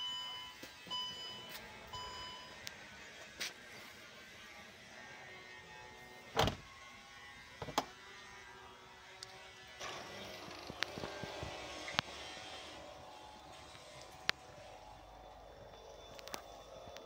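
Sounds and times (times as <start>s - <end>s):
power liftgate motor closing: 6.3s - 6.7s, 9.8s - 15.0s.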